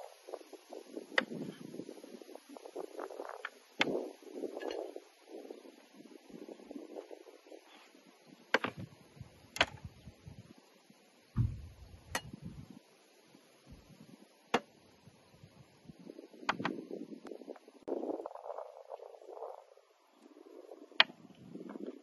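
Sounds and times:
dull knock: 0:11.4 - 0:11.8.

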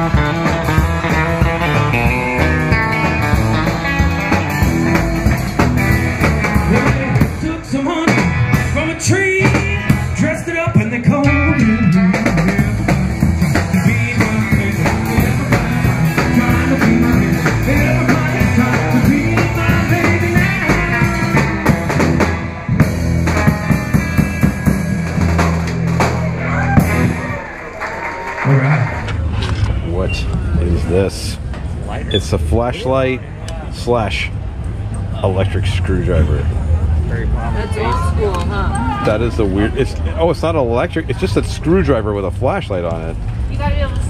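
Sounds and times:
rockabilly band music: 0:00.0 - 0:29.3
person singing: 0:13.5 - 0:21.6.

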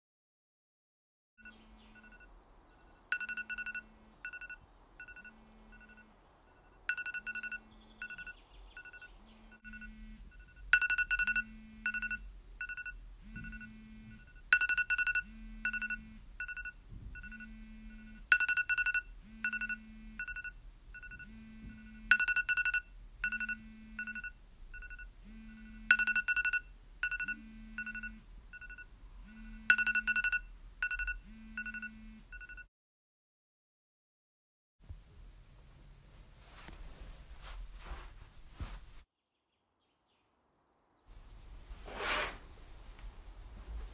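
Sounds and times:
phone alarm beeping: 0:01.4 - 0:32.7
phone vibrating on wooden table: 0:03.0 - 0:32.7.

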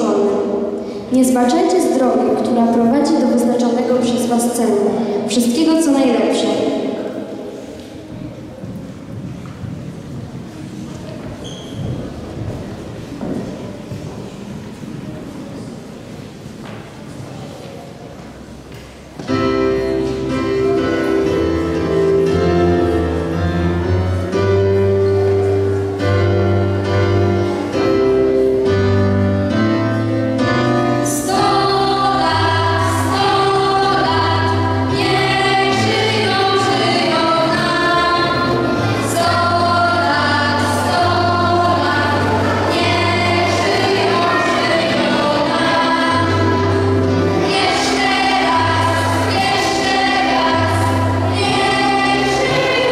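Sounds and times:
girls singing together: 0:31.0 - 0:52.9.

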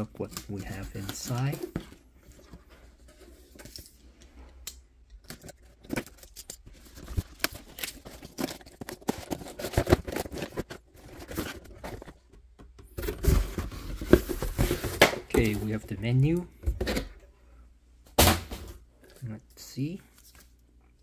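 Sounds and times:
box packaging tearing and rustling: 0:00.0 - 0:03.9, 0:05.2 - 0:12.2.

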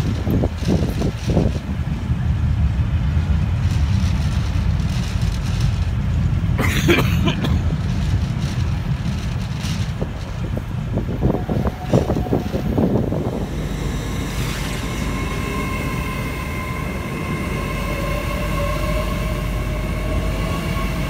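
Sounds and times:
train wheels rumbling on rails: 0:00.0 - 0:21.0
high-pitched wheel screech: 0:11.2 - 0:21.0.

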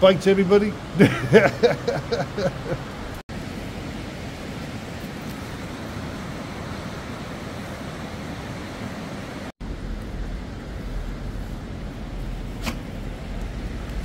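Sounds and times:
man laughing: 0:01.0 - 0:03.0
river rushing over rapids: 0:01.6 - 0:14.0.

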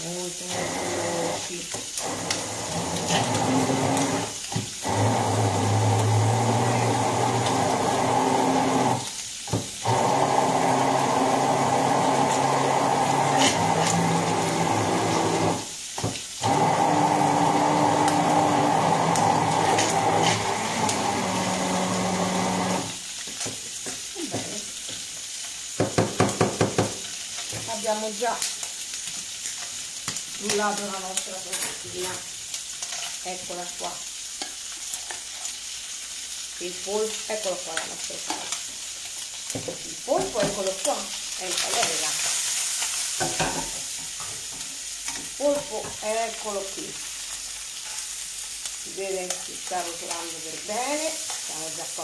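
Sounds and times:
food sizzling in a pan: 0:00.0 - 0:52.0
immersion blender running: 0:00.4 - 0:09.1, 0:09.8 - 0:15.7, 0:16.4 - 0:23.0.

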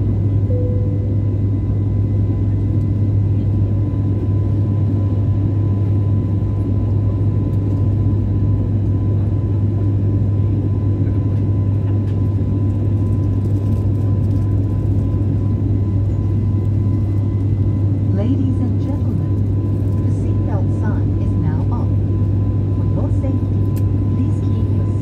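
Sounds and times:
airliner cabin engine hum: 0:00.0 - 0:25.0
faint high steady tone: 0:00.4 - 0:01.3.

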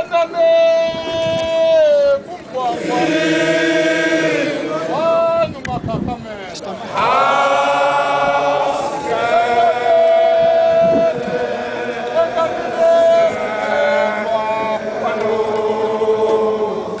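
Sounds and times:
men chanting with long held notes: 0:02.6 - 0:05.4, 0:06.9 - 0:17.0.

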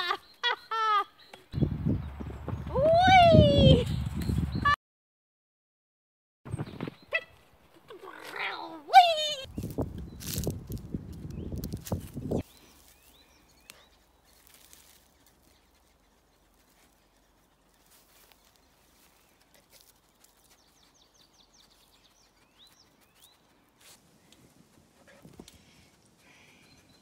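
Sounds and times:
small bird chirps: 0:09.4 - 0:24.3
songbird trill: 0:09.4 - 0:24.4, 0:25.6 - 0:27.0.

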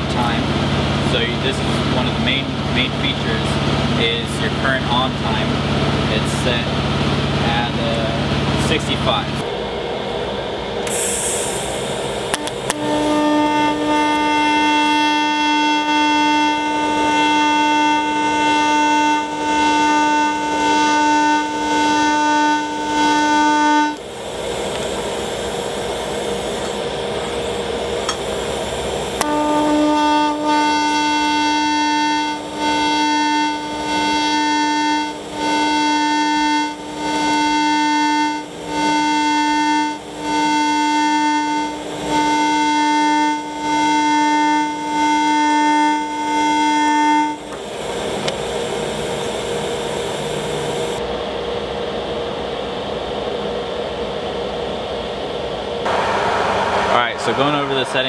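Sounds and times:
welding arc buzzing: 0:10.8 - 0:51.0.

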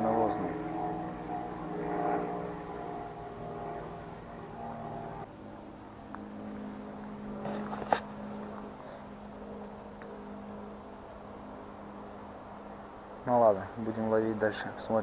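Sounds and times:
distant engine droning: 0:00.0 - 0:15.0.

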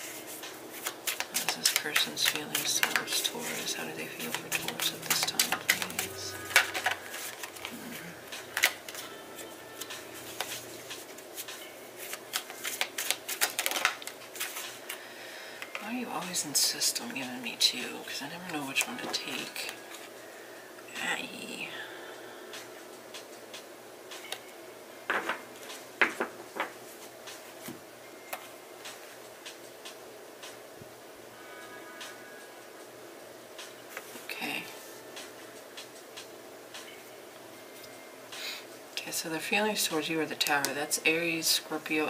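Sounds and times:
cards being shuffled: 0:00.0 - 0:15.0
cards tapping on table: 0:25.1 - 0:25.4, 0:26.0 - 0:26.8.

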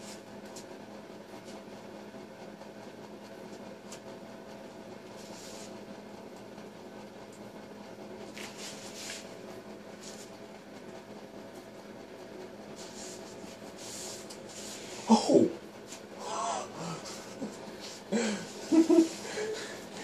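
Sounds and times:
steady low hum: 0:00.0 - 0:20.0
soft hissing rustles: 0:05.2 - 0:05.8, 0:08.4 - 0:09.4, 0:12.8 - 0:15.2.

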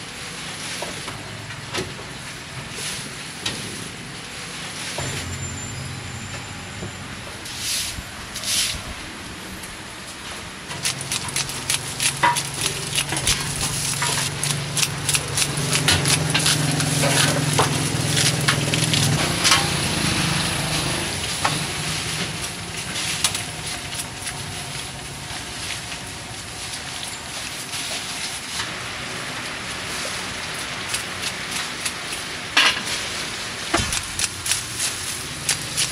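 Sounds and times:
oil sizzling with crackles: 0:09.7 - 0:35.9
metal strainer and utensils clinking: 0:11.0 - 0:20.8.

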